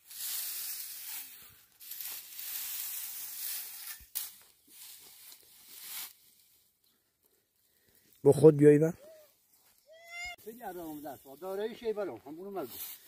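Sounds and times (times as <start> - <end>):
hay rustling under pitchfork: 0.0 - 6.4.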